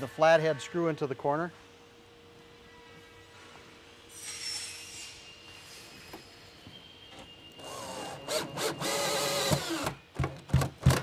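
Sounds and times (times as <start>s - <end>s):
cordless drill driving screw: 7.6s - 9.9s.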